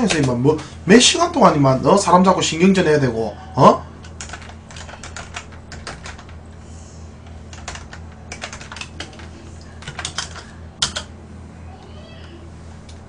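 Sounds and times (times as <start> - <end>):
low steady hum: 0.0 - 13.0
typing on keyboard: 4.0 - 6.4, 7.5 - 11.1.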